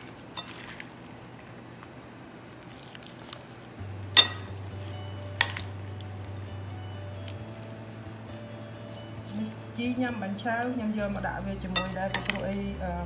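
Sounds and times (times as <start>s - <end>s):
kitchenware clinking on glass bowl: 0.4s - 0.8s, 4.2s - 4.6s, 5.4s - 5.7s, 11.7s - 12.6s.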